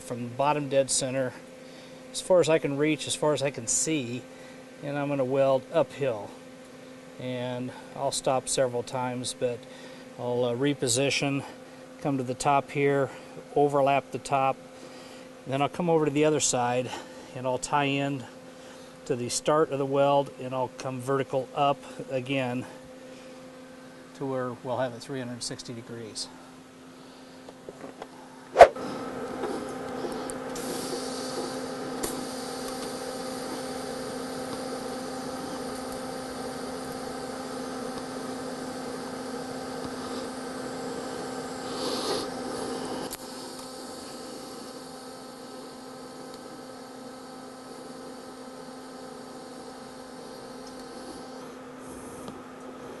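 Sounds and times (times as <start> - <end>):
welding arc humming buzz: 28.8 - 52.6.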